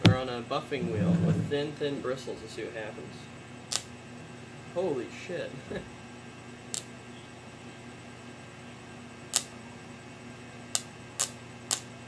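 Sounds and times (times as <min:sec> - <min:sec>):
low electrical hum: 0:00.0 - 0:12.0
electric arc crackling snaps: 0:03.7 - 0:04.0, 0:06.7 - 0:07.0, 0:09.3 - 0:09.6, 0:10.7 - 0:12.0.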